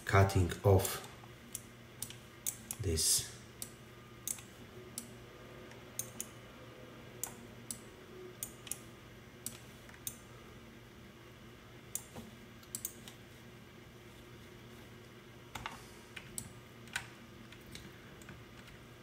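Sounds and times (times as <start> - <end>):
faint low hum: 0.0 - 19.0
computer mouse clicking: 1.5 - 2.8, 3.6 - 5.1, 5.7 - 6.3, 8.4 - 8.8, 9.4 - 10.2, 11.9 - 13.2.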